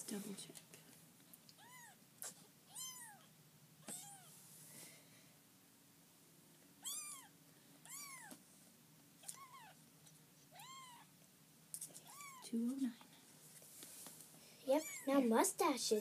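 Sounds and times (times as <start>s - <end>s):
kitten mewing: 1.6s - 2.0s, 6.8s - 8.4s, 9.2s - 9.8s, 10.5s - 11.1s, 11.8s - 12.5s.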